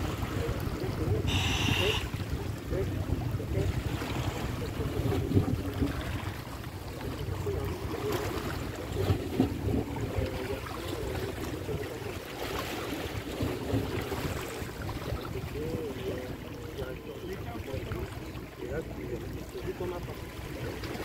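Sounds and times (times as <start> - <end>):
wind on microphone: 0.0 - 16.4
sea waves washing: 0.0 - 21.0.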